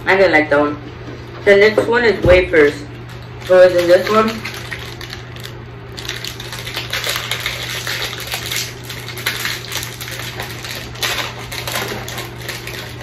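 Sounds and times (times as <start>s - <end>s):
plastic packet crinkling: 2.6s - 13.0s.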